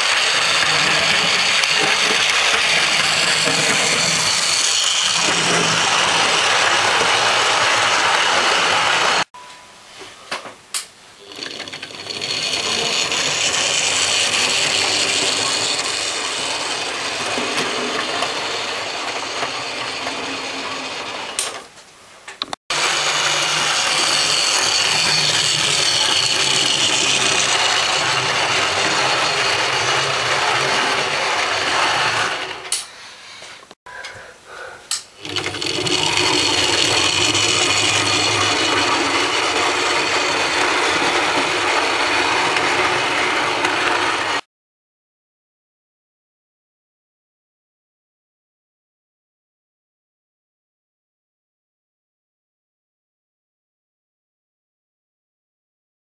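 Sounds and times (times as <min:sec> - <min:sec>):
model train motor whirring: 0:00.0 - 0:09.3, 0:11.2 - 0:21.6, 0:22.7 - 0:32.9, 0:35.2 - 0:44.4.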